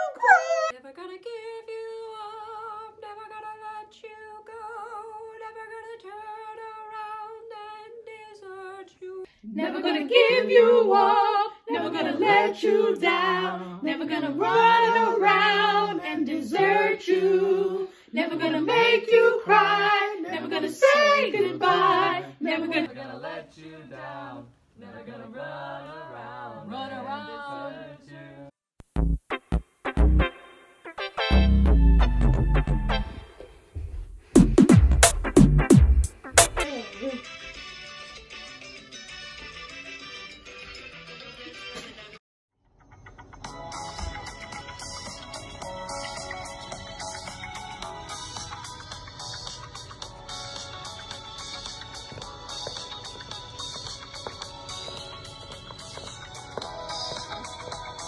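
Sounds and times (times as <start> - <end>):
group singing together: 9.4 - 28.5.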